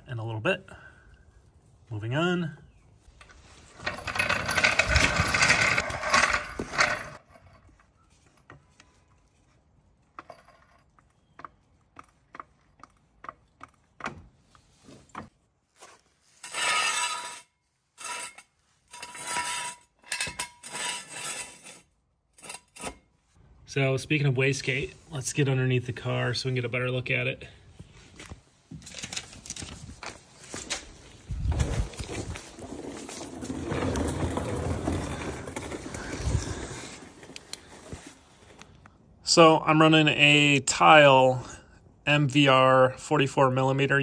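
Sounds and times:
scraping: 0:03.0 - 0:09.5, 0:15.8 - 0:23.1, 0:27.8 - 0:38.7
floor jack rolling on concrete: 0:03.1 - 0:09.4, 0:16.4 - 0:23.0, 0:29.6 - 0:38.6.

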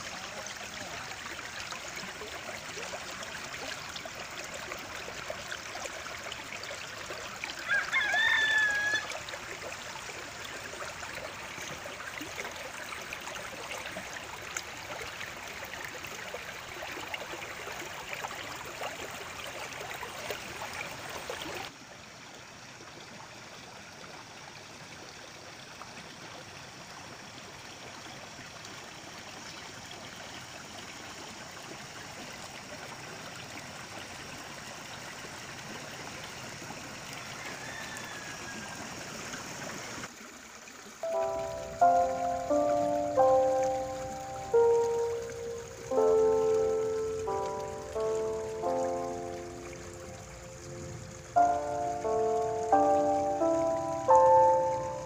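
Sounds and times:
running water rushing: 0:00.0 - 0:55.0
rooster crowing: 0:07.6 - 0:09.2, 0:37.4 - 0:38.8.

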